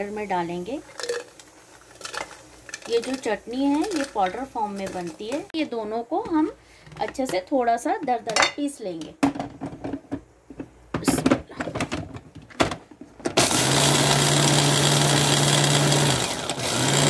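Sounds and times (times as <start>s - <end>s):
food processor motor grinding: 13.4s - 17.0s.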